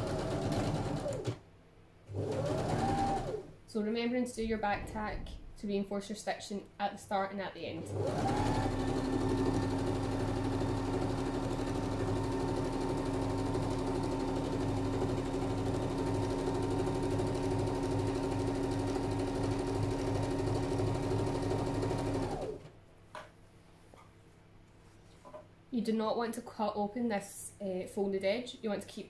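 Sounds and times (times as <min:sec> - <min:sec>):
sewing machine running: 0:00.0 - 0:01.4, 0:02.1 - 0:03.5, 0:07.8 - 0:22.6.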